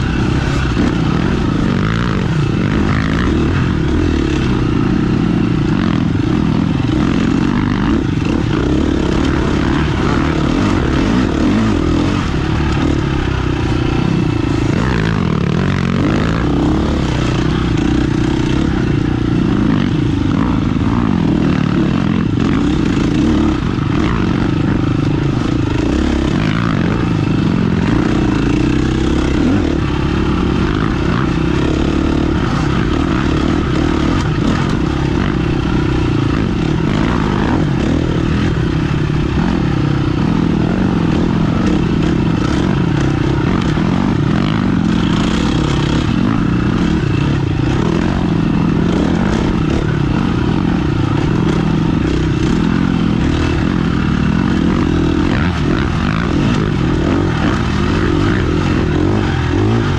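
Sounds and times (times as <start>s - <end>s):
motorcycle engine drone: 0.0s - 59.9s.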